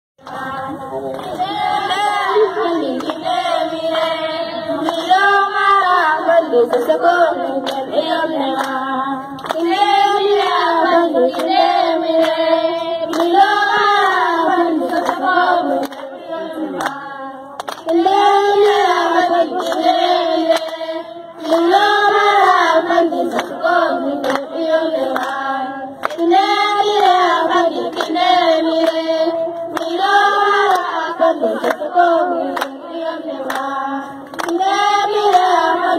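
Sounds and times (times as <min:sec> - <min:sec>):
hand claps: 0:00.2 - 0:02.0, 0:02.9 - 0:03.3, 0:04.8 - 0:05.3, 0:07.6 - 0:07.9, 0:08.5 - 0:09.8, 0:11.2 - 0:11.6, 0:12.2 - 0:12.4, 0:13.0 - 0:13.4, 0:14.8 - 0:16.1, 0:16.8 - 0:17.0, 0:17.6 - 0:18.9, 0:19.6 - 0:20.8, 0:21.4 - 0:22.7, 0:23.3 - 0:31.0, 0:31.6 - 0:35.6
women singing together: 0:00.2 - 0:35.9.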